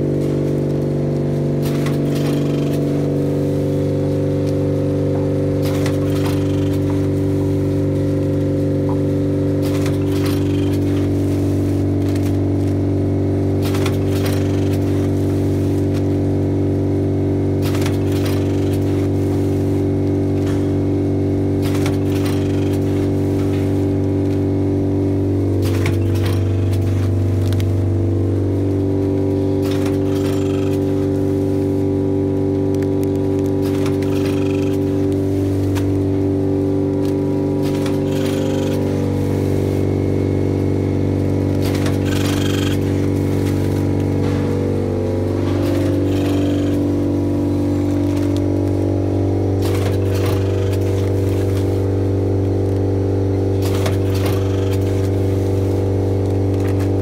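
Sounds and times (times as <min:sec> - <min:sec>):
packing machine motor hum: 0:00.0 - 0:57.0
machine clacks and rustles: 0:00.1 - 0:12.9, 0:13.5 - 0:16.2, 0:17.5 - 0:19.6, 0:21.5 - 0:24.5, 0:25.6 - 0:27.6, 0:29.5 - 0:31.3, 0:33.1 - 0:36.1, 0:37.0 - 0:40.0, 0:41.4 - 0:48.6, 0:49.6 - 0:51.9, 0:53.6 - 0:55.8.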